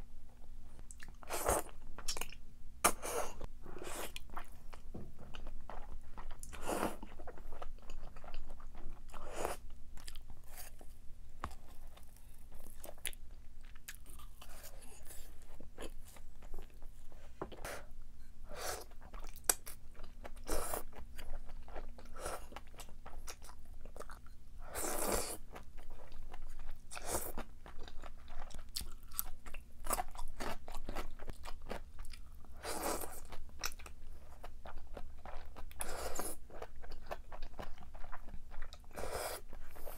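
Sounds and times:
person crunching and chewing: 11.5s - 16.8s, 18.9s - 39.9s.

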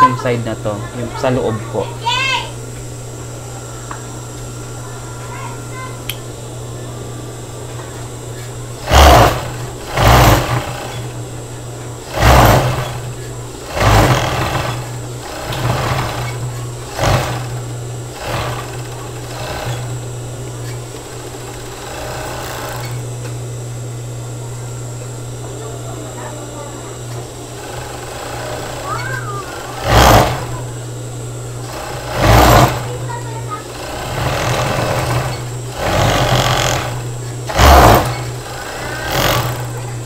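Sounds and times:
sewing machine motor hum: 7.2s - 40.0s
overlock machine stitching: 8.8s - 11.2s, 12.0s - 20.1s, 20.8s - 23.0s, 27.5s - 30.7s, 31.6s - 39.8s.

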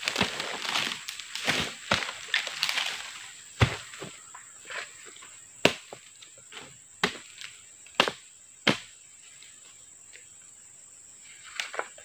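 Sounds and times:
high insect drone: 0.0s - 12.0s
hand tool chopping fruit bunches: 5.6s - 6.0s.

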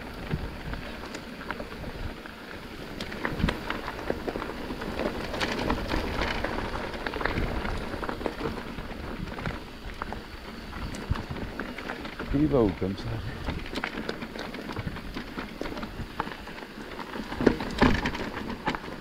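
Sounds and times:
bike tyres crunching over stones: 0.0s - 19.0s.

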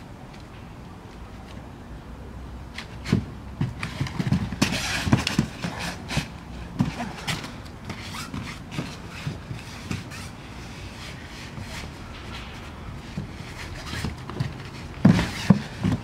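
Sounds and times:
bare feet thudding on foam mats: 11.5s - 16.0s.

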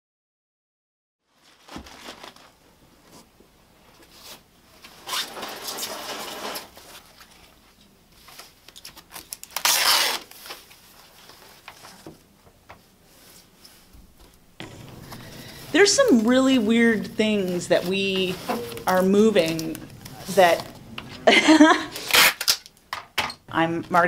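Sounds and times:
foam wrap rustling and scraping: 1.3s - 3.3s, 4.0s - 12.0s, 15.0s - 22.7s.

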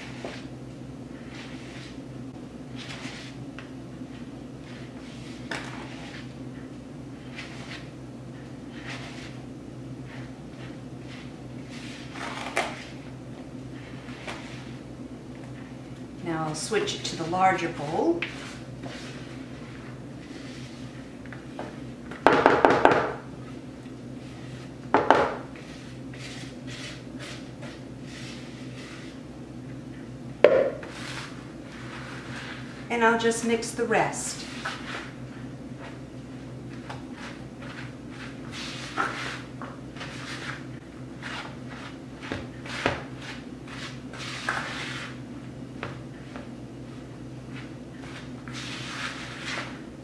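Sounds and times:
spatula scraping a mixing bowl: 0.0s - 0.5s, 1.1s - 2.1s, 2.7s - 6.4s, 7.2s - 13.1s, 13.8s - 14.9s, 16.5s - 21.5s, 25.4s - 29.2s, 30.8s - 35.2s, 36.7s - 45.2s, 47.5s - 49.9s.

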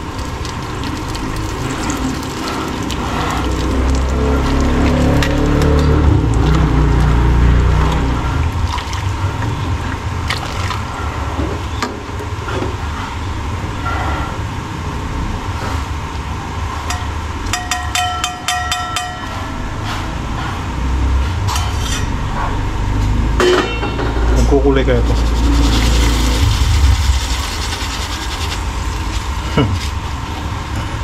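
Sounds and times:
oil pouring into sauce: 0.0s - 10.9s
metal ladle clinking against pan: 16.9s - 19.4s
steady low rumble: 24.0s - 31.0s.

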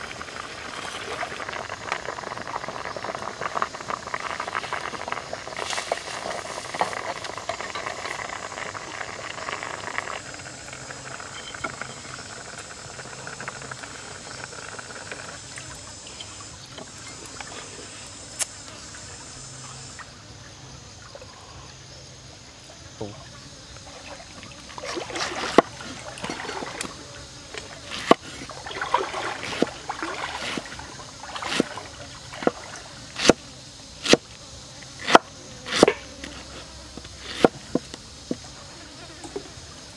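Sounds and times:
liquid bubbling in pan: 0.0s - 17.8s, 23.8s - 33.2s.

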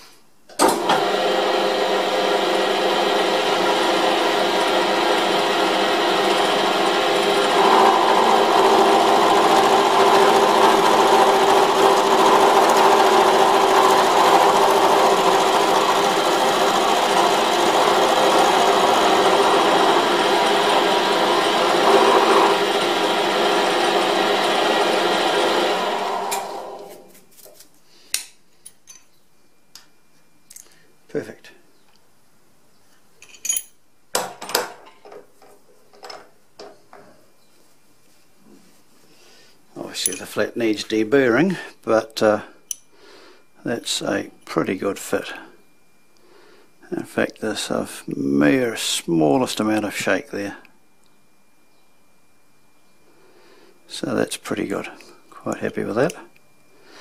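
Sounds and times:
milling machine cutting steel: 0.7s - 26.9s.

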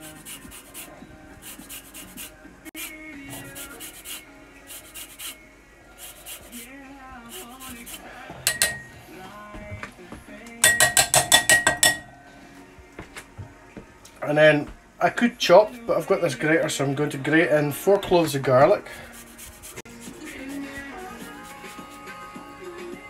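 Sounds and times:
grater tapping glass bowl: 8.5s - 8.9s, 10.6s - 12.1s.

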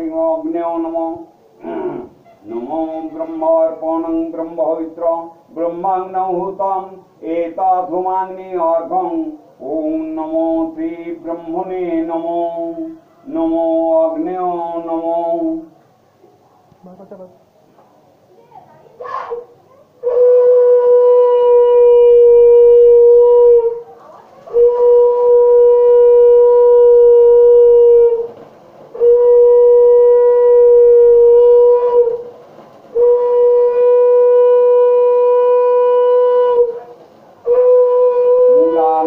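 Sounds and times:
conch shell blasts: 20.0s - 23.7s, 24.5s - 28.3s, 28.9s - 32.3s, 32.9s - 39.0s.

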